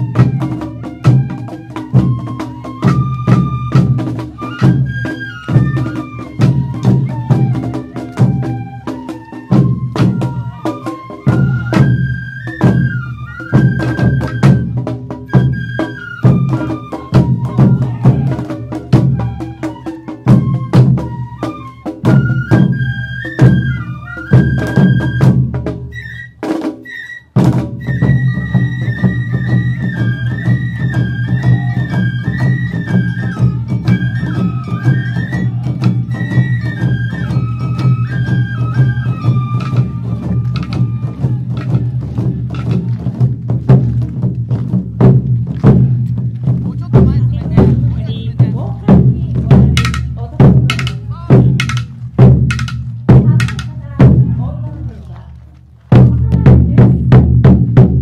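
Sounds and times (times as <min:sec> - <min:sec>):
bamboo flute high notes: 0:00.0 - 0:42.8
drums and percussion beating: 0:00.0 - 0:58.0.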